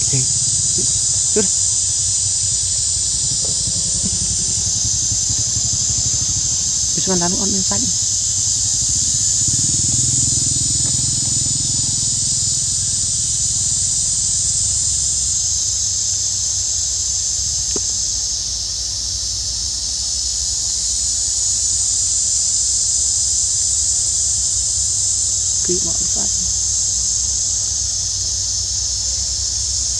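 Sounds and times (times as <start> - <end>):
low rumble: 0.0 - 14.2
insect chorus buzzing: 0.0 - 29.9.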